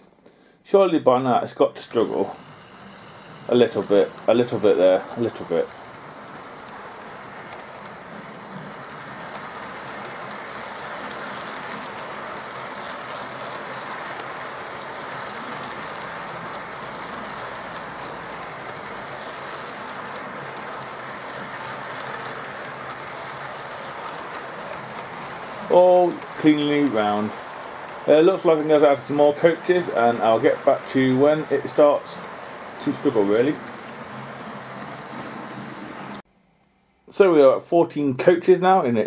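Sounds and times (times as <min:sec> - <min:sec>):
model train wheels clattering: 0:01.5 - 0:36.2.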